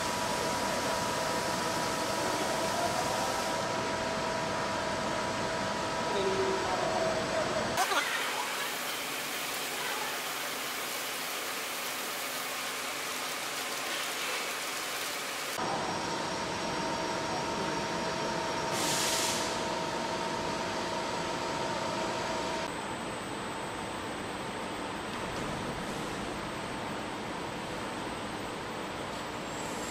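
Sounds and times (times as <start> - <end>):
machine hum with whining tones: 0.0 - 29.9
industrial machine hiss: 18.7 - 19.7.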